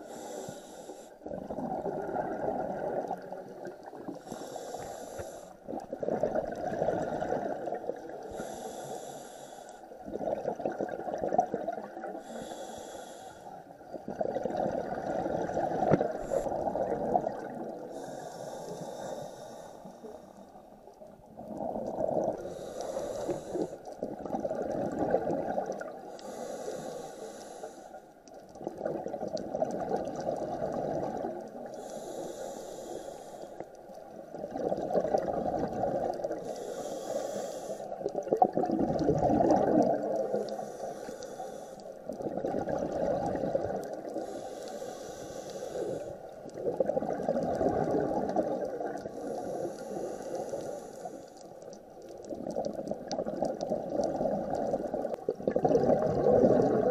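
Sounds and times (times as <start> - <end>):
regulator inhale hiss: 0.0 - 1.2, 4.1 - 5.6, 8.2 - 10.0, 12.1 - 13.7, 17.9 - 20.7, 22.4 - 24.0, 26.1 - 28.2, 31.7 - 34.0, 36.2 - 38.2, 40.2 - 42.2, 44.0 - 46.6, 48.9 - 51.9
exhaled bubbles rushing: 1.3 - 4.1, 5.7 - 8.1, 10.0 - 12.1, 14.0 - 17.8, 24.0 - 26.0, 28.6 - 31.5, 34.3 - 36.4, 38.1 - 40.3, 42.1 - 44.2, 46.4 - 49.1, 52.3 - 56.9.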